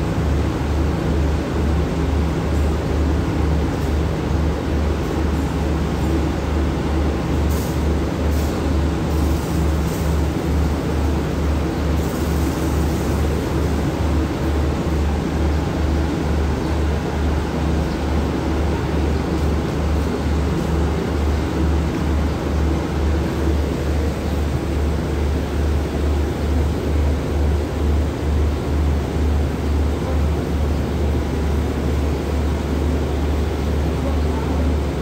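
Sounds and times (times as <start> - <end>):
train diesel engine idling: 0.0 - 35.0.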